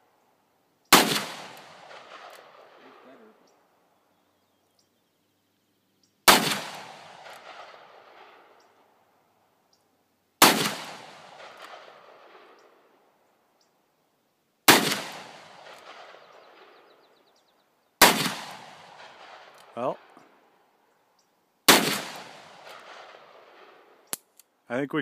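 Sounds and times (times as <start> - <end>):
revolver shots with echo: 10.4 - 11.9, 21.7 - 23.2.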